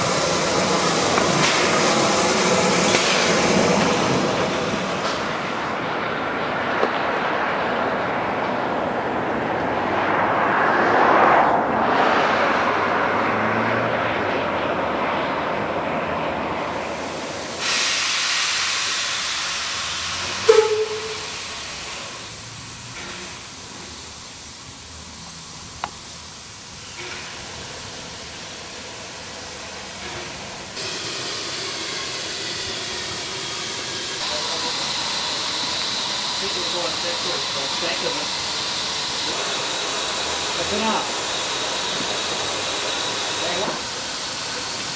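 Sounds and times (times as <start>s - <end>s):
steam hissing from locomotive: 0.0s - 6.0s, 15.0s - 44.9s
steam railcar running past: 0.0s - 44.9s.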